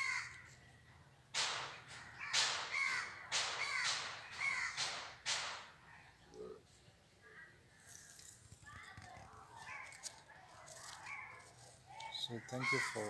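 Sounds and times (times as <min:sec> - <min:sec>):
crow cawing: 0:00.0 - 0:00.5, 0:02.0 - 0:05.2, 0:12.0 - 0:13.0.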